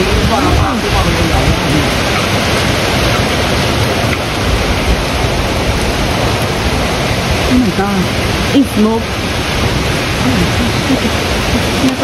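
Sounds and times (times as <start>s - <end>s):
wind and rain through trees: 0.0s - 12.0s
wind buffeting microphone: 0.0s - 12.0s.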